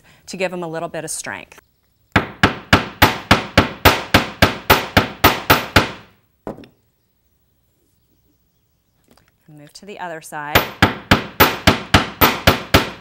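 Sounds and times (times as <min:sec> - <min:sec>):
hammer striking wire on metal: 0:10.6 - 0:13.0.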